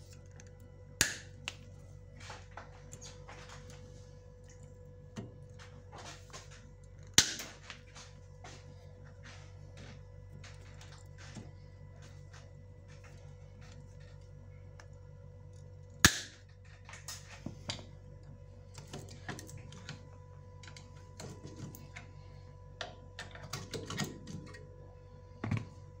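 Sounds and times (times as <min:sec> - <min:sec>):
faint steady hum: 0:00.0 - 0:26.0
side cutters snapping wire: 0:01.0 - 0:01.6, 0:16.0 - 0:16.4.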